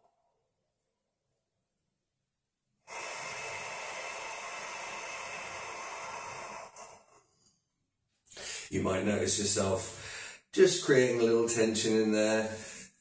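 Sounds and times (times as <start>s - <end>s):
deep exhale close to microphone: 2.9s - 7.4s, 8.4s - 8.7s, 9.9s - 10.5s, 12.4s - 13.0s.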